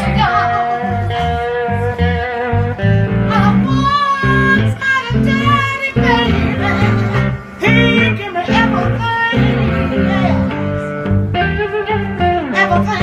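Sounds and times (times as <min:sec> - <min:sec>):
woman singing: 0:00.0 - 0:02.0, 0:03.3 - 0:10.6
amplified blues guitars: 0:00.0 - 0:13.0.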